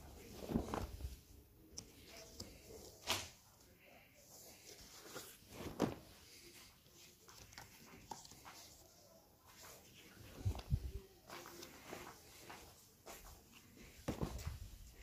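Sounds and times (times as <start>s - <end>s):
leather sheets rustling: 0.1s - 1.2s, 4.8s - 6.6s, 13.2s - 15.0s.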